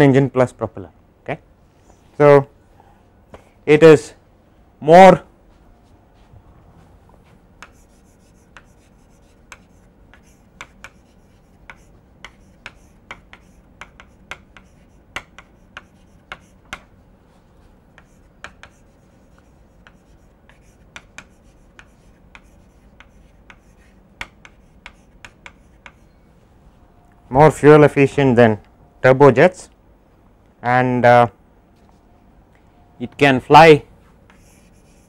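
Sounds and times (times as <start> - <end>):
chalk tapping and scratching: 7.2 - 26.2, 34.0 - 35.0.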